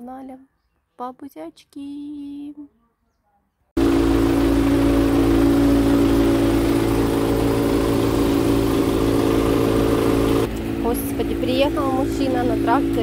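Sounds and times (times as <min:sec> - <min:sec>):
tractor engine running: 0:03.8 - 0:13.0.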